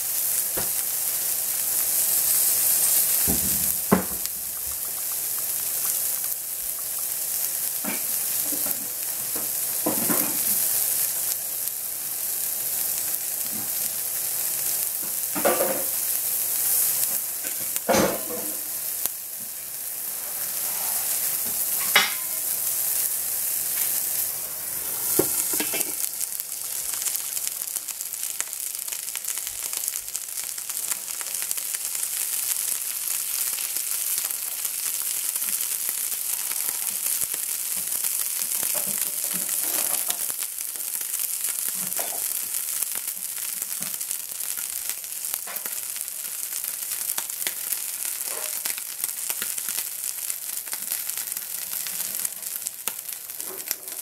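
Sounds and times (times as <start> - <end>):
vegetables sizzling in oil: 0.0 - 54.0
cookware clattering: 21.8 - 22.4, 25.3 - 26.0.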